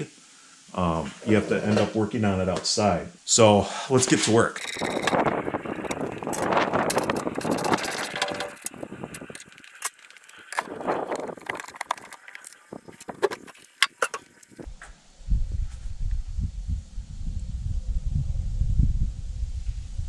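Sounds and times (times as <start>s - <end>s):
wind rumbling on microphone: 4.5s - 20.0s
metal clicks and clanks: 4.6s - 14.7s
rustling handling noise: 4.6s - 14.7s.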